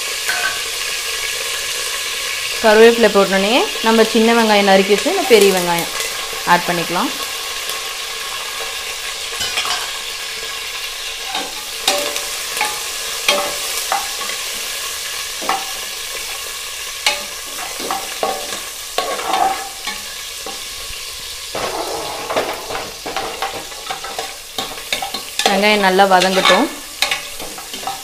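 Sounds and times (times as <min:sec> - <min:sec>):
food sizzling in hot oil: 0:00.0 - 0:28.0
spoon clicking and scraping pot: 0:26.2 - 0:28.0.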